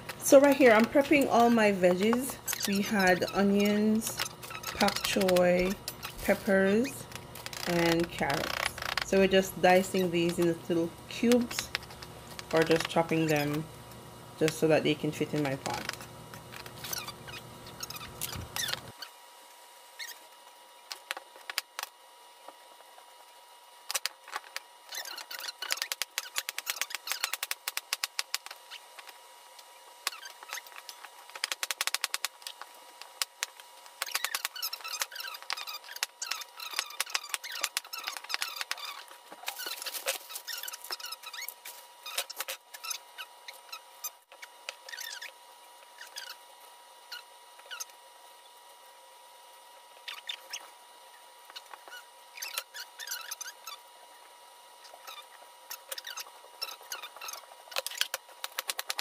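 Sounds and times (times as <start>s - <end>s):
squeaky crunching of vegetables: 4.1s - 6.2s, 24.8s - 29.0s, 30.1s - 32.6s, 34.0s - 45.4s.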